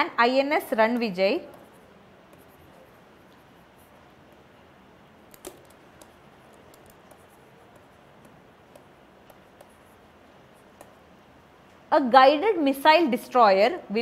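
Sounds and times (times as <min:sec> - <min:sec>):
low room hiss: 0:00.0 - 0:14.0
pen scratching while writing: 0:01.5 - 0:04.4, 0:05.3 - 0:11.0
pen clicks: 0:05.3 - 0:09.8.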